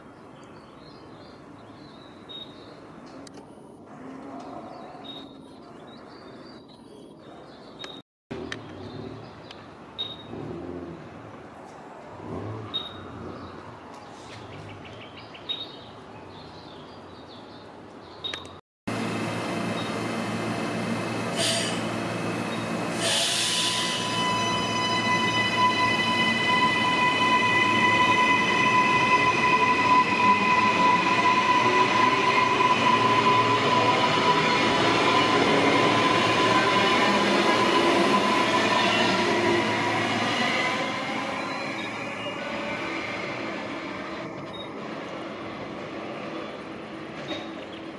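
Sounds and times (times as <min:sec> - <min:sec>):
electric train high whine: 0:18.9 - 0:47.3
air hiss: 0:21.3 - 0:21.9, 0:22.9 - 0:24.0.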